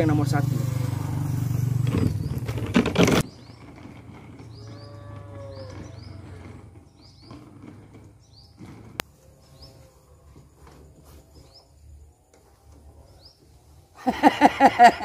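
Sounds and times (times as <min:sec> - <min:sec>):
small birds chirping: 0:00.0 - 0:10.1, 0:11.1 - 0:14.0
cow mooing: 0:04.6 - 0:06.7.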